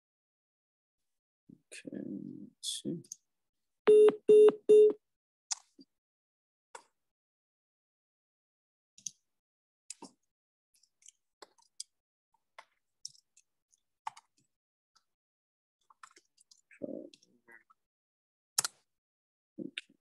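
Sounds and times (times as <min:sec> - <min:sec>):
keyboard and mouse clicks: 0:04.1 - 0:05.9, 0:12.6 - 0:14.4, 0:15.8 - 0:17.3, 0:18.6 - 0:18.8.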